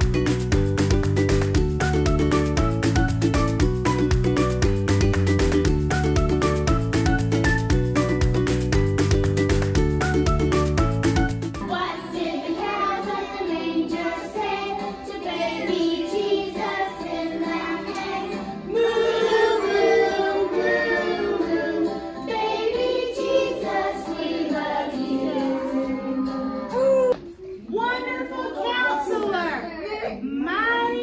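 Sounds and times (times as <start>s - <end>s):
children singing together: 11.6s - 26.8s.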